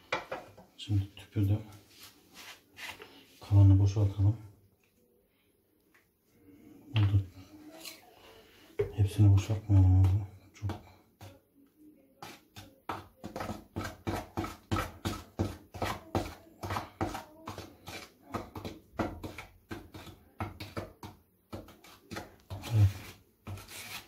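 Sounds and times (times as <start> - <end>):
knife scraping plastic bowl: 12.2 - 24.0.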